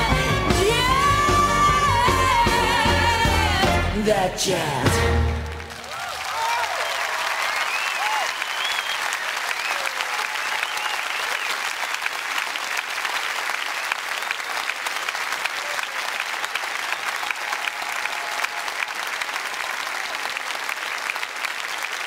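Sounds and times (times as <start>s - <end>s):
audience clapping: 5.0s - 22.0s
scattered cheers: 5.6s - 11.8s, 15.4s - 21.2s.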